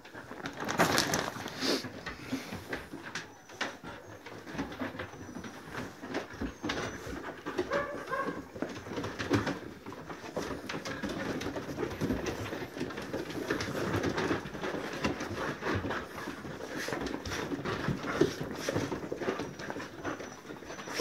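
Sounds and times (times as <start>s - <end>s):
paws scuffling on wooden boards: 0.0s - 21.0s
dogs panting: 0.1s - 21.0s.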